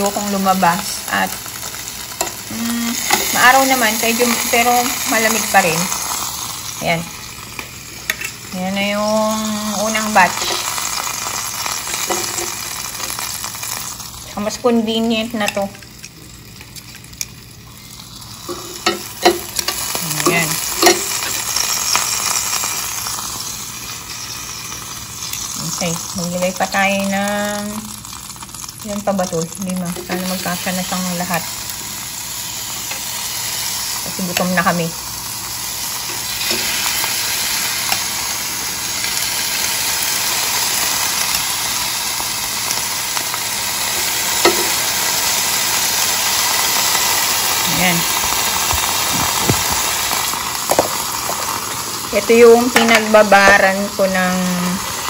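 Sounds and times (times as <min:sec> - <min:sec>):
meat skewers sizzling on a grill: 0:00.0 - 0:55.0
metal tongs scraping grill grate: 0:18.4 - 0:22.0.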